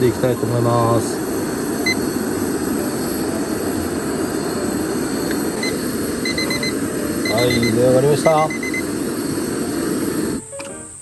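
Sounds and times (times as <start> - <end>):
camp stove flame rushing: 0.0 - 11.0
kitchen timer beeping: 5.6 - 8.9.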